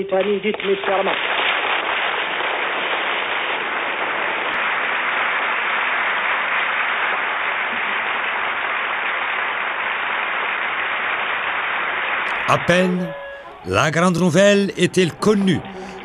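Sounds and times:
crowd applauding: 4.5 - 11.3, 12.2 - 16.0.

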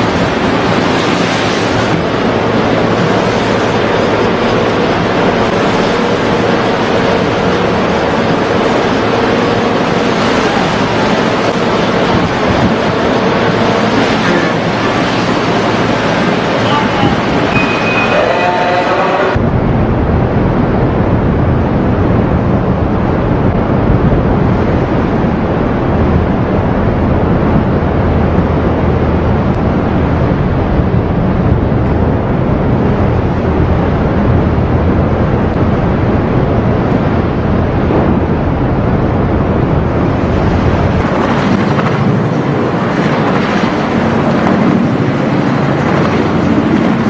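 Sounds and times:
churning sea water: 0.0 - 47.0
wind on microphone: 0.0 - 47.0.

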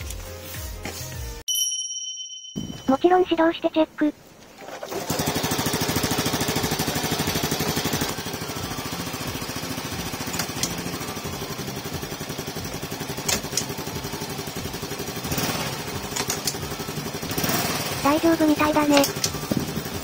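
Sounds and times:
motorcycle engine idling: 5.2 - 20.0.

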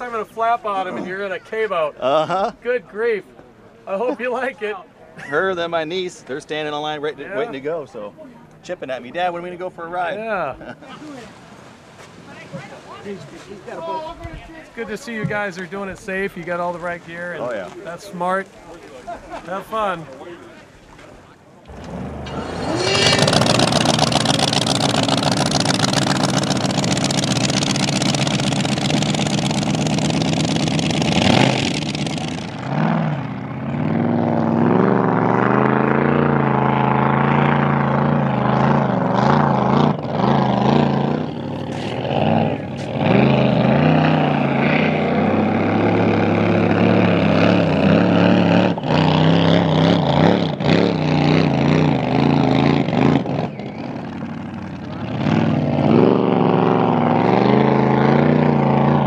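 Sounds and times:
loud boat engine: 21.7 - 59.0.

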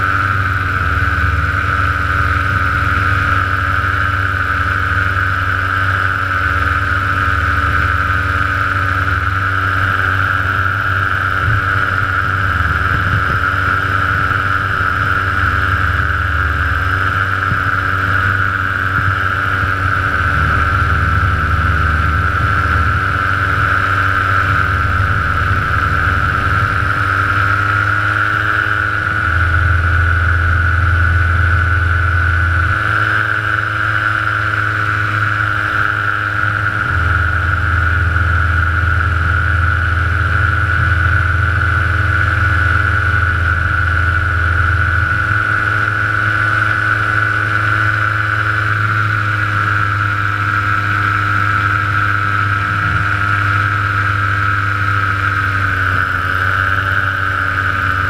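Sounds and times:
light aircraft engine and propeller: 0.0 - 58.0
low rumble: 0.0 - 58.0.

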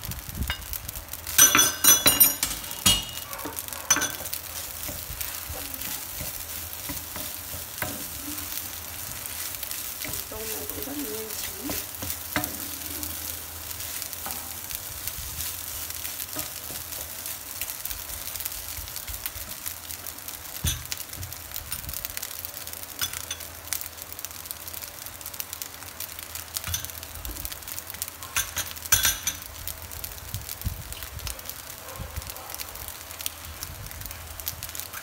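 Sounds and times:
fried rice sizzling in a pan: 0.0 - 35.0
sharp crackles: 0.0 - 35.0
wooden spatula stirring: 1.6 - 17.7.

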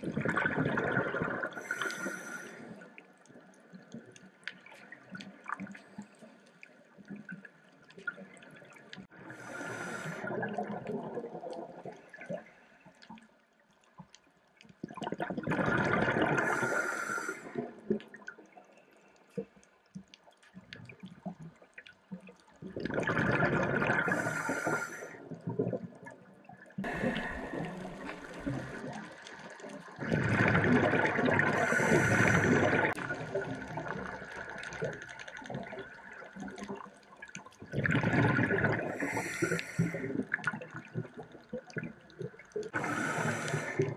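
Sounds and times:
exhaled bubbles rushing: 0.0 - 1.8, 10.2 - 12.2, 14.9 - 16.8, 22.6 - 26.2, 26.8 - 43.9
faint clicks: 3.2 - 8.2, 31.6 - 37.6.

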